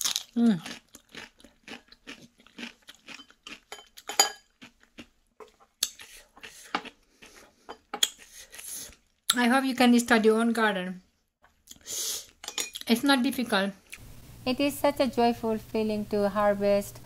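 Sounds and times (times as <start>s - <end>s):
crunching and chewing: 0.0s - 9.3s.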